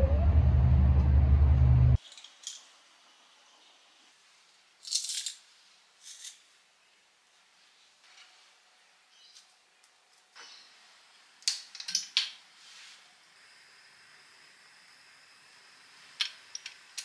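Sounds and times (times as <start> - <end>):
low rumble: 0.0 - 2.0.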